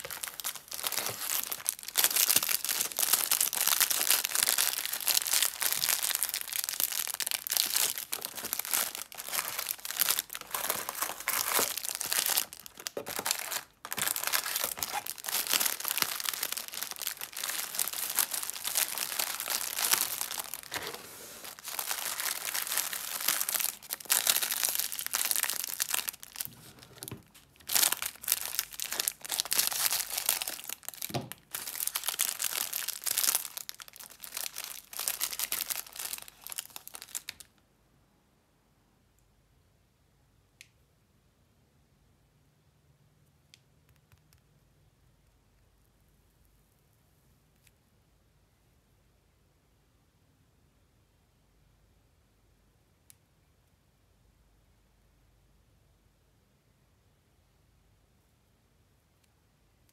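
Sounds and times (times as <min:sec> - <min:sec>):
plastic wrappers crackling: 0:00.0 - 0:37.5.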